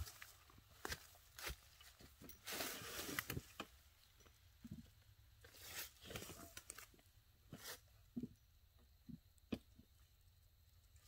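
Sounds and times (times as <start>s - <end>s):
rustling and crackling: 0.0s - 7.8s.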